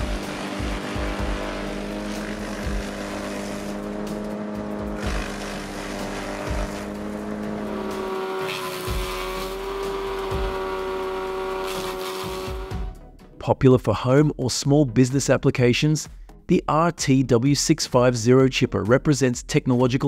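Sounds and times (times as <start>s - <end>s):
wood chipper engine running: 0.0s - 12.9s.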